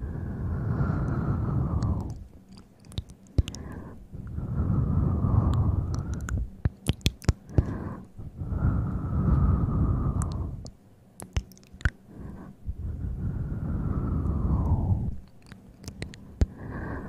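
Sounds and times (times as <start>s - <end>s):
sharp taps and clicks: 6.2s - 7.7s.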